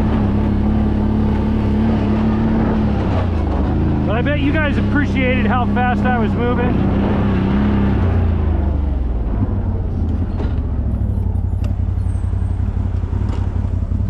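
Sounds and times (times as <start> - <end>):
motorcycle engine running low: 0.0 - 14.0.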